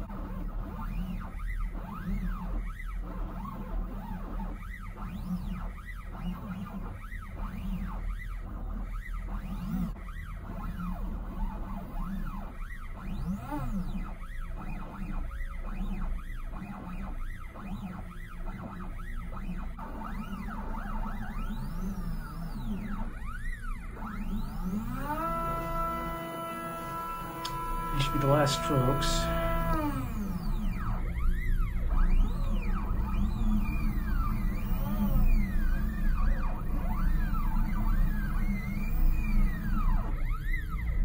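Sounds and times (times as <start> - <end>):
stepper motors whining: 21.8 - 40.9.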